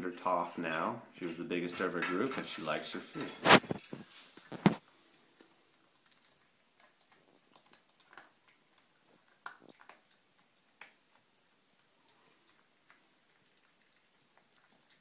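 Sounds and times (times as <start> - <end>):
puppy chewing food: 3.5 - 15.0.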